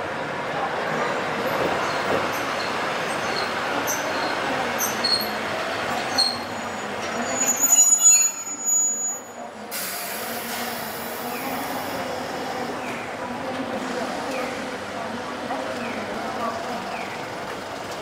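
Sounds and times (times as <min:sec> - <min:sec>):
streetcar wheels squeaking on rails: 0:00.7 - 0:14.9, 0:15.5 - 0:18.0
streetcar brake squeal: 0:01.8 - 0:12.0.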